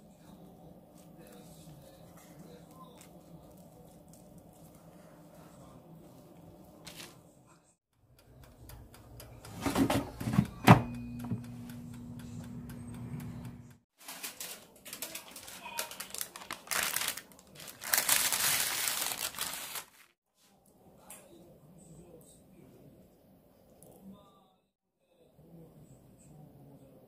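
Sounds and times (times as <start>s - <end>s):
baking paper crinkling: 1.0s - 5.5s, 6.8s - 7.2s, 14.0s - 20.2s
steady hum with held tone: 10.2s - 13.8s.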